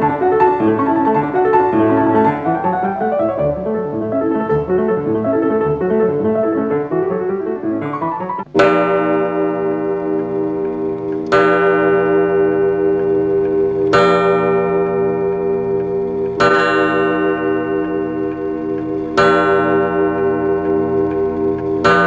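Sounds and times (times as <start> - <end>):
keyboard music: 0.0 - 13.2
wall clock chime strikes: 8.4 - 22.0.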